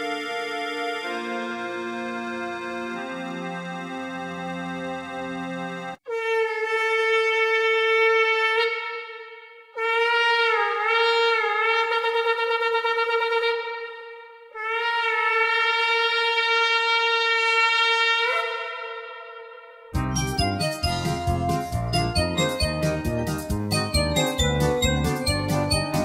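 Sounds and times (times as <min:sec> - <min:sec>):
shofar long blasts: 0:06.1 - 0:20.0.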